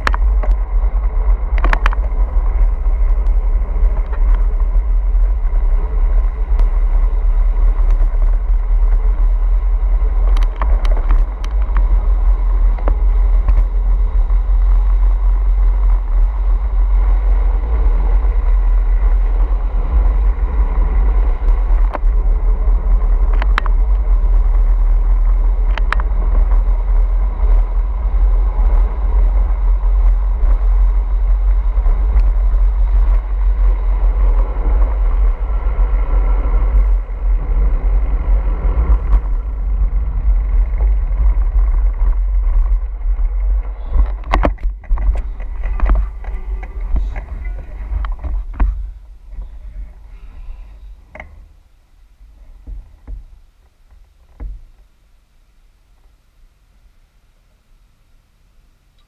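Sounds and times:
motorcycle engine running: 0.0 - 54.8
wind rumble on microphone: 0.0 - 56.2.

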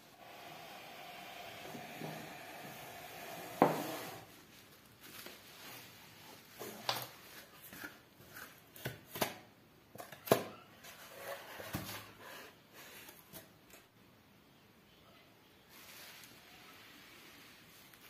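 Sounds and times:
bubble wrap rustling: 4.2 - 8.8, 15.7 - 18.0
bubble wrap crackles and snaps: 4.4 - 6.0.

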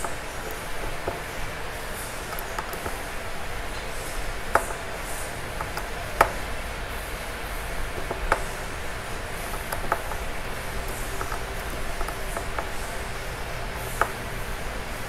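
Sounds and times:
steady low hum: 0.0 - 15.0
hex driver clicks: 7.9 - 14.6.

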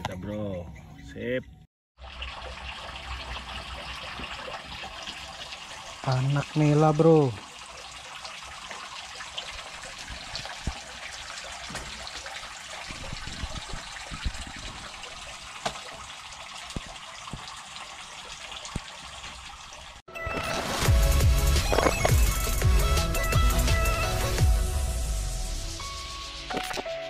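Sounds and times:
water splashing from hose: 2.0 - 24.4
electronic music with heavy beat: 20.6 - 27.0.

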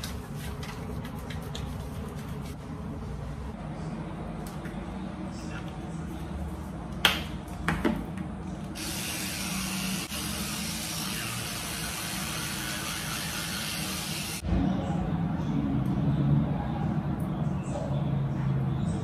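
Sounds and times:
electric toothbrush running: 8.8 - 14.4.

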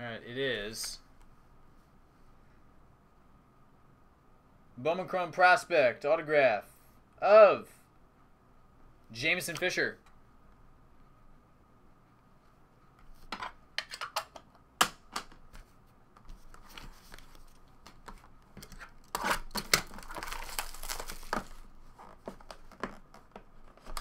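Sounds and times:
foil wrappers crinkling: 19.0 - 23.0
wrapper tearing: 19.0 - 23.0.

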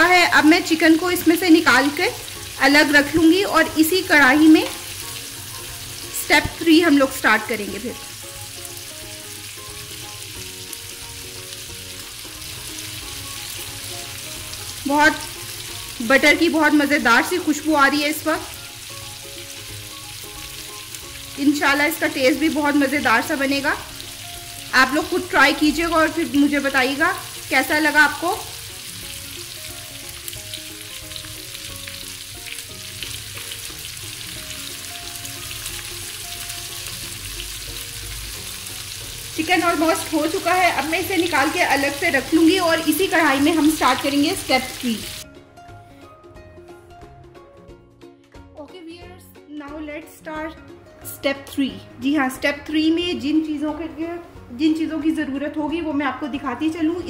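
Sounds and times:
chicken sizzling in a pan: 0.0 - 45.2.

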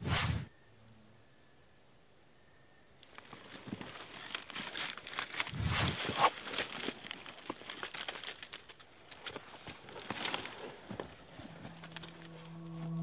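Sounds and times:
jacket rustling against rock: 3.1 - 12.5.

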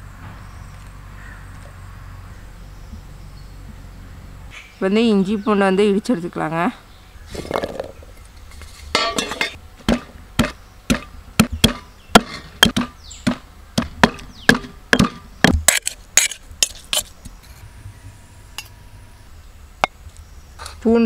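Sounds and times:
stone pestle pounding in mortar: 9.9 - 17.1.

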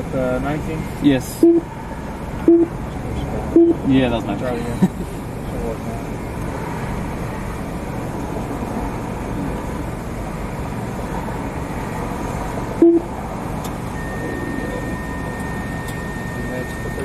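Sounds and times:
car engine idling: 0.0 - 17.0
outdoor traffic: 0.0 - 17.0
loud low beep: 1.4 - 1.7, 2.4 - 2.8, 3.5 - 3.9, 12.8 - 13.1, 13.9 - 17.0.

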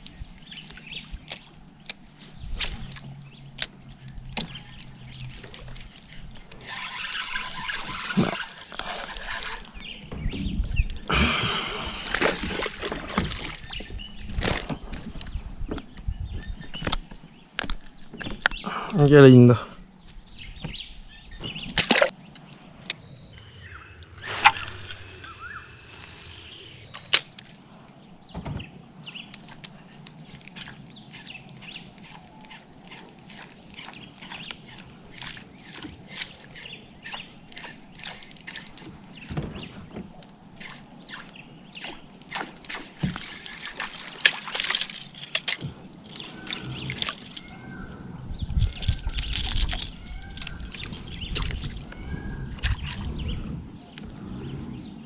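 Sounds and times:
water lapping around a kayak: 0.0 - 16.8, 28.8 - 55.0.

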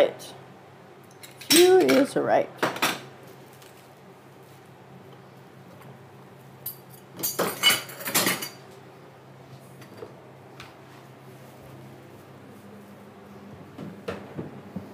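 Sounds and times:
metal utensils clattering: 6.7 - 8.6.

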